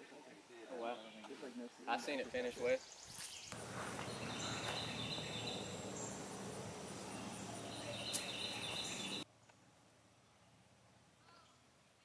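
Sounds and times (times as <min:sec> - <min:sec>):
low hum: 0:03.5 - 0:09.2.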